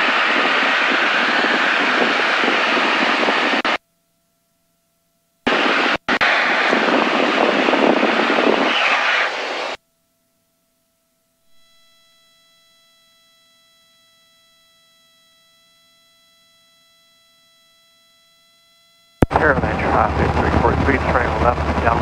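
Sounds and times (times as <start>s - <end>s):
aircraft engine cabin drone: 0.0s - 3.8s, 5.5s - 9.8s, 19.2s - 22.0s.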